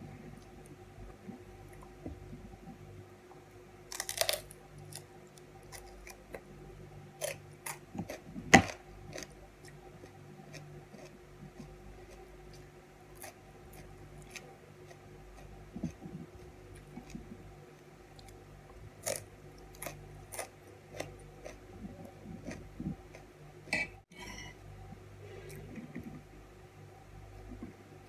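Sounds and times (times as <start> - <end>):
steady low hum: 0.0 - 28.0
chewing crisp cucumber: 3.9 - 6.4, 7.2 - 17.3, 19.0 - 23.3
fork scraping a plate: 23.7 - 24.6.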